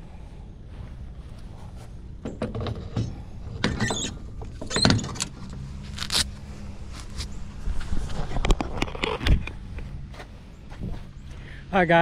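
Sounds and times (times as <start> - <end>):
low steady hum: 0.0 - 12.0
lawn equipment knocking and rattling: 2.2 - 5.3.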